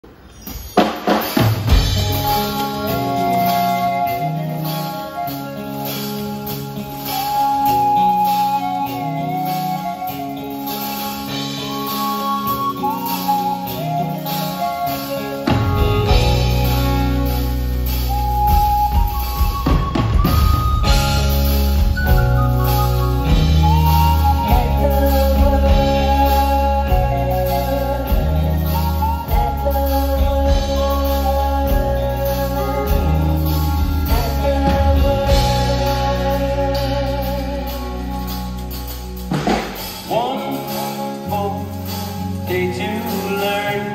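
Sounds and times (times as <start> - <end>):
live band playing soft rock: 0.0 - 43.9
electric guitar: 0.5 - 43.9
heavy bass: 1.7 - 4.7, 15.5 - 43.9
person singing: 1.8 - 17.3, 23.2 - 39.0, 40.0 - 43.9.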